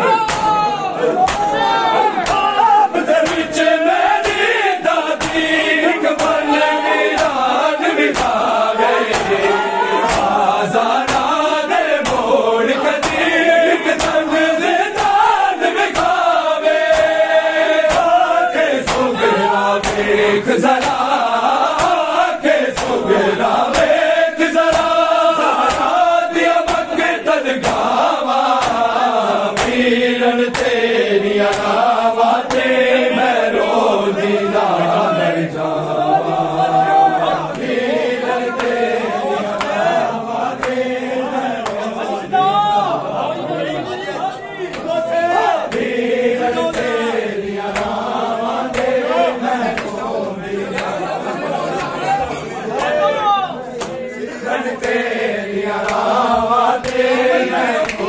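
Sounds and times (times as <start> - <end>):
men chanting in unison: 0.0 - 58.0
hands slapping chests: 0.1 - 30.8, 31.4 - 32.8, 37.5 - 37.8, 38.5 - 38.9, 39.5 - 40.9, 41.6 - 42.0, 44.7 - 47.0, 47.6 - 50.1, 50.7 - 51.1, 51.7 - 52.0, 54.8 - 55.1, 55.8 - 58.0.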